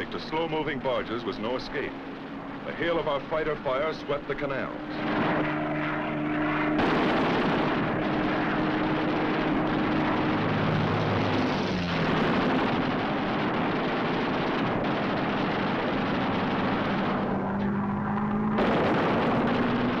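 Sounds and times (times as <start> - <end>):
aircraft engine drone: 0.0 - 20.0
explosions: 6.4 - 17.8, 18.4 - 20.0
machine guns firing: 6.8 - 9.9.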